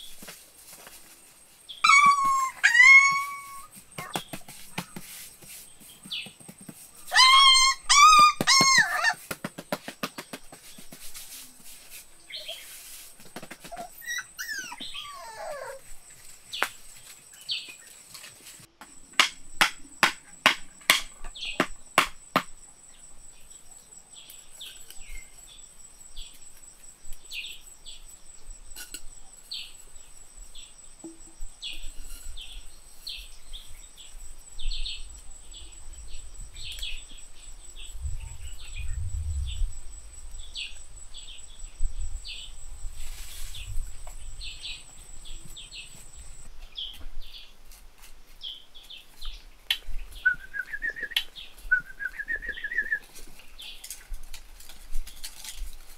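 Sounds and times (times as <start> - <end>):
small birds chirping: 1.0 - 9.2, 10.1 - 18.6, 19.5 - 47.6, 48.4 - 54.2
sharp knocks: 19.1 - 22.6
high insect whine: 20.6 - 47.6.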